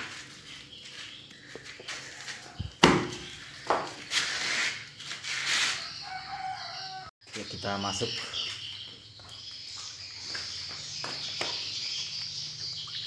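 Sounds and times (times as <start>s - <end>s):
sharp knock: 2.8s - 3.2s.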